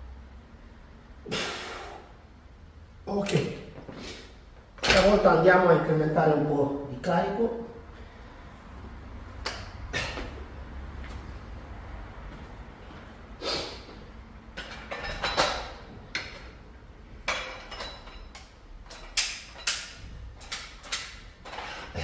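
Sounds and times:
dumbbells clanking: 14.5s - 16.6s, 17.2s - 22.0s.

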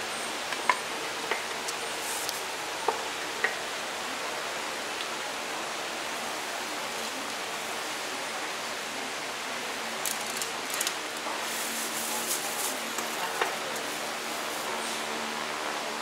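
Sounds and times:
steady hiss: 0.0s - 16.0s
utensils clicking and clattering: 10.0s - 14.8s.

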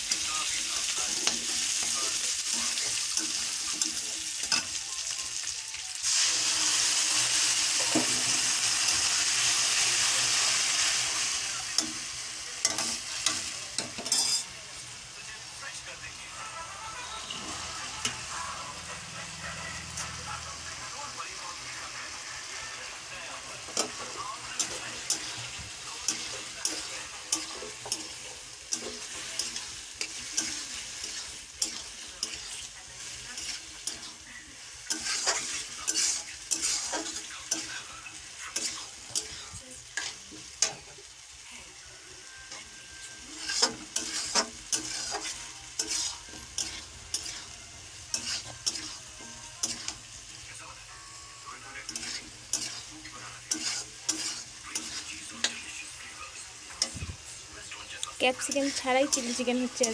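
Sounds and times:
food sizzling in a wok: 0.0s - 59.9s
metal spatula scraping a pan: 12.6s - 14.5s, 23.6s - 40.9s, 42.4s - 50.1s, 51.8s - 57.0s, 58.3s - 59.9s.

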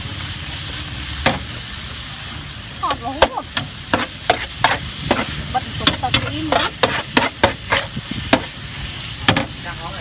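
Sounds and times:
food sizzling: 0.0s - 10.0s
metal spatula scraping a griddle: 3.6s - 9.6s.

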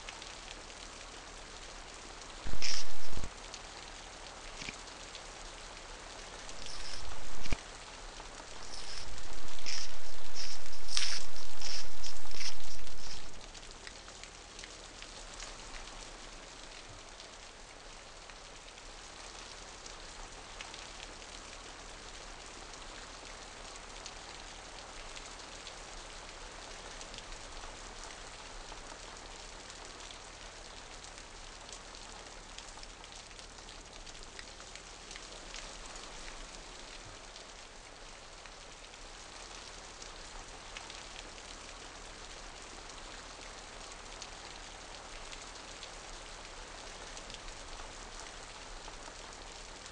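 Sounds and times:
rain pattering: 0.0s - 49.9s
faint low hum: 2.5s - 3.3s, 6.4s - 7.6s, 8.5s - 13.4s.

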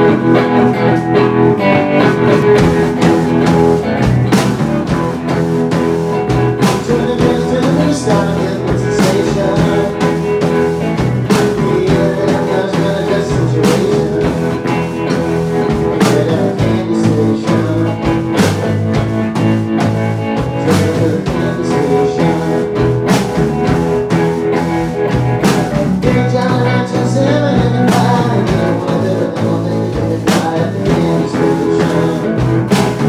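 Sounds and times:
rock band playing: 0.0s - 33.0s
drum hits: 2.1s - 33.0s.

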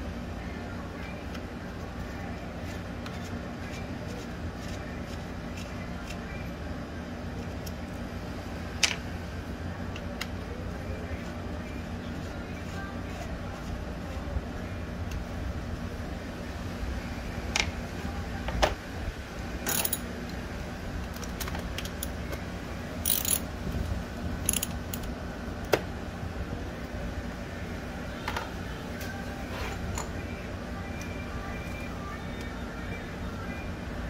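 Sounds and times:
steady low hum: 0.0s - 34.0s
metal clinks: 19.6s - 20.0s
ratchet clicking: 23.0s - 23.5s, 24.4s - 25.1s.

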